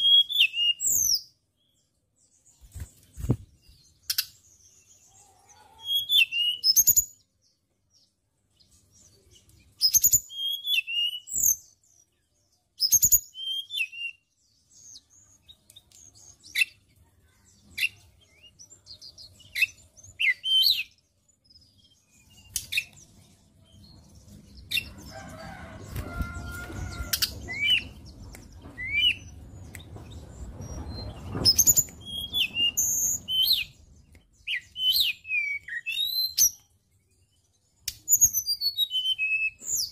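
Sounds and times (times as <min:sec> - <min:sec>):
bird singing whistled notes: 0:00.0 - 0:01.4, 0:05.8 - 0:07.3, 0:09.7 - 0:12.2, 0:12.8 - 0:16.8, 0:17.7 - 0:23.0, 0:26.9 - 0:29.8, 0:30.4 - 0:39.9
wing flutters: 0:02.6 - 0:03.6
low rumbling background noise: 0:23.4 - 0:34.3.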